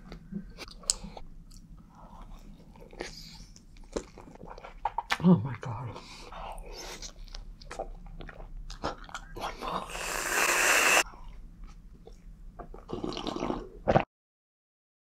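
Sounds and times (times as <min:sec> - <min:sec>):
chewing and wet mouth sounds: 0:00.0 - 0:14.0
sipping from a cup: 0:09.9 - 0:11.0.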